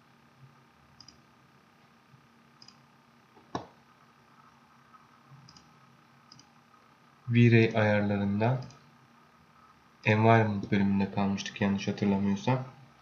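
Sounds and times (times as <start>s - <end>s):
computer mouse clicks: 1.0s - 1.2s, 2.6s - 2.8s, 5.4s - 5.7s, 6.3s - 6.5s.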